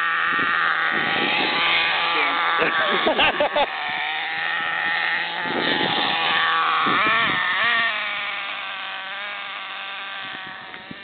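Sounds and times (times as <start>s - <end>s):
rc car engine whining: 0.0s - 11.0s.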